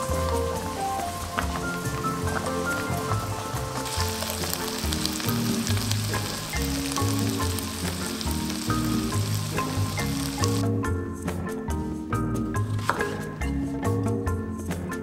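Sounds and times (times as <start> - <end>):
chicken sizzling in oil: 0.0 - 10.6
pasta water bubbling: 0.0 - 10.6
soft background music: 0.0 - 15.0.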